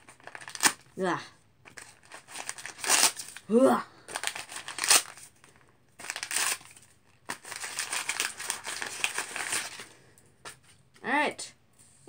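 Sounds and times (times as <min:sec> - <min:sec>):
paper crinkling and crumpling: 0:00.0 - 0:00.9, 0:01.6 - 0:03.5, 0:04.1 - 0:11.0.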